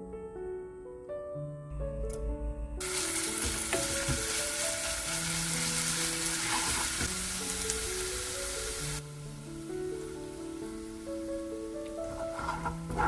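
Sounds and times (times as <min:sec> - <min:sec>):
garlic sizzling in oil: 0:02.8 - 0:13.0.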